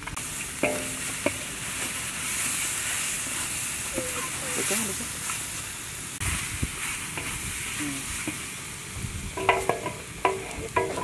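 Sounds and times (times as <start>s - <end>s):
food sizzling in a wok: 0.0s - 11.0s
wooden paddle scraping wok: 0.4s - 5.5s, 6.2s - 8.5s, 9.3s - 11.0s
paddle knocking on ringing wok: 0.6s - 1.4s, 9.4s - 11.0s.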